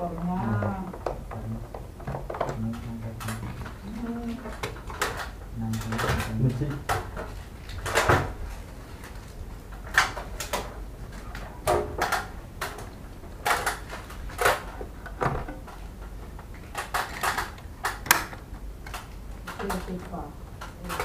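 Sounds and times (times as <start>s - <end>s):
faint low hum: 0.0s - 21.0s
tools and parts clicking and knocking: 11.3s - 21.0s.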